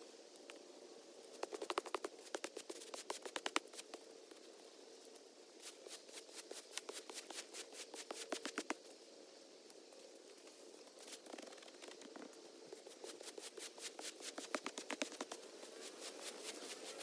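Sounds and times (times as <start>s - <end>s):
broom scratching artificial turf: 1.4s - 4.0s, 5.6s - 8.8s, 12.8s - 17.0s.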